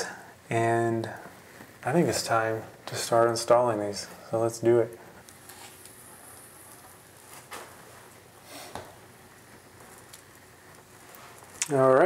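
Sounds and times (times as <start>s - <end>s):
soft rustles: 5.0s - 11.8s.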